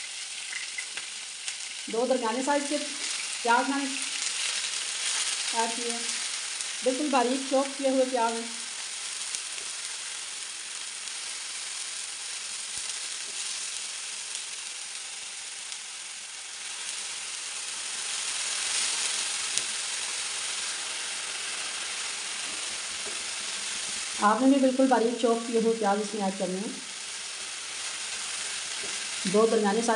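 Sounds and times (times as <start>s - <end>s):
onions sizzling in oil: 0.0s - 29.9s
spatula stirring in pan: 27.0s - 29.3s.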